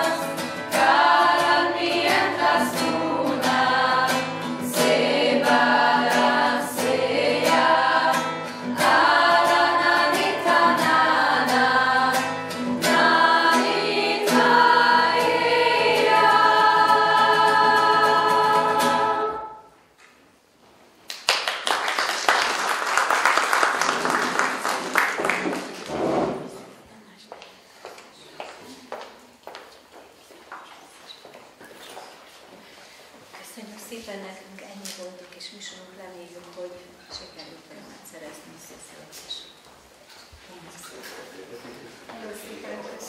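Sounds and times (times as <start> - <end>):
acoustic guitar strumming: 0.0 - 19.7
choir singing: 0.0 - 19.8
audience applauding: 21.1 - 26.1.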